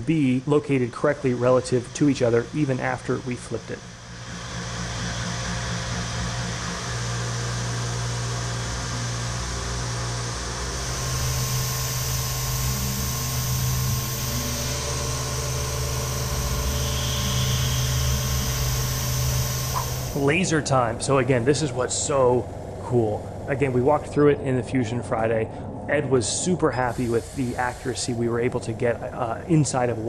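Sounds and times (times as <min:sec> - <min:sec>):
mill spindle machining hum: 0:00.0 - 0:30.0
higher hiss: 0:10.8 - 0:20.4, 0:26.7 - 0:29.7.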